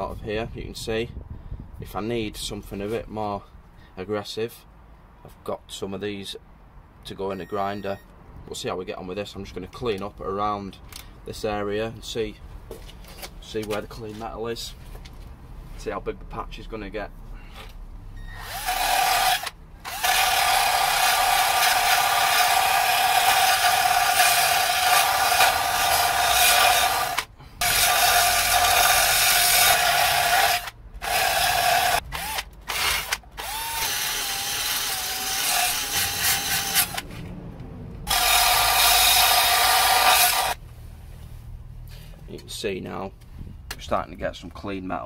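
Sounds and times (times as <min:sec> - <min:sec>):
drill wire wheel scrubbing rust: 0:18.3 - 0:37.0, 0:38.1 - 0:40.6.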